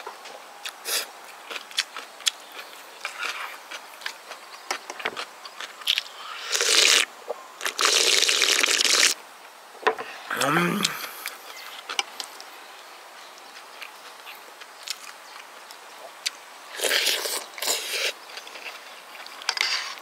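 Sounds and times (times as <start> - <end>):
chewing: 0.6 - 8.2, 13.3 - 20.0
loud slurps of broth: 6.3 - 7.1, 7.7 - 9.2.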